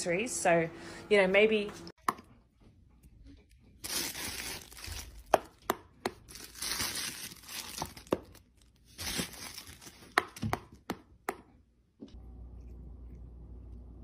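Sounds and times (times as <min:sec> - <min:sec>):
low hum: 0:12.0 - 0:14.0.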